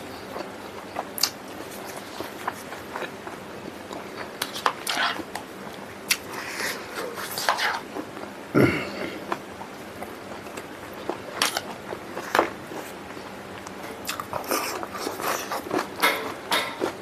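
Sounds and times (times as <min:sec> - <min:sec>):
wet chewing and lip smacks: 0:13.6 - 0:15.9.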